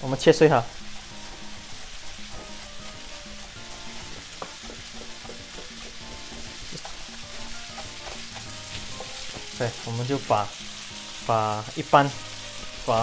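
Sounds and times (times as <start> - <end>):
frying pan sizzling: 0.0 - 13.0
knife tapping chopping board: 4.1 - 7.1, 7.7 - 9.6.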